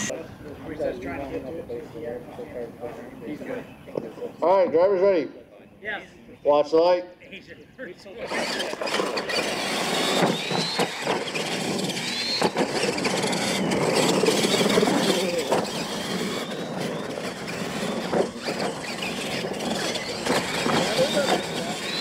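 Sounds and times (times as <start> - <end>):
toy truck motors whining: 8.1 - 22.0
tyres rushing on loose dirt: 8.3 - 22.0.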